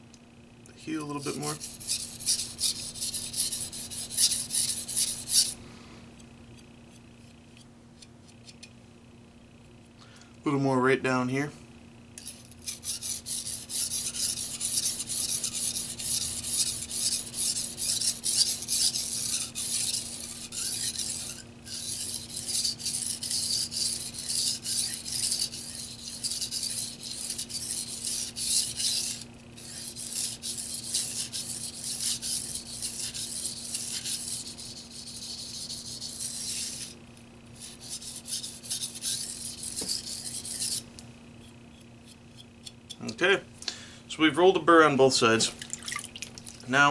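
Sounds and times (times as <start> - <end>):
knife scraping on whetstone: 1.1 - 5.6, 12.2 - 37.0, 37.6 - 43.1.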